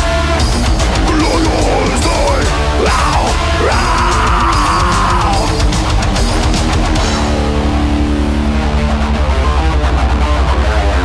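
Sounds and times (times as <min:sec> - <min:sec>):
distorted electric guitars: 0:00.0 - 0:11.0
fast low drum pulse: 0:00.5 - 0:07.7.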